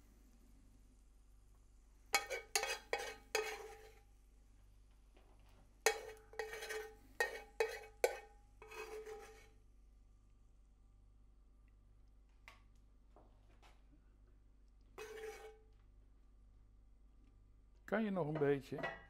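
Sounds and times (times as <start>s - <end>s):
metal spoon scraping skillet: 2.1s - 4.1s, 5.8s - 9.6s, 15.0s - 15.8s.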